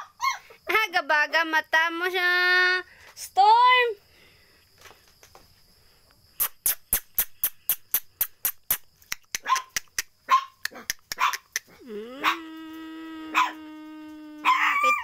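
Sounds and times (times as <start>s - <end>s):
sharp clicks: 6.4s - 11.7s
puppy crying: 12.2s - 12.5s, 13.3s - 13.7s, 14.4s - 15.0s
puppies yapping: 14.4s - 15.0s.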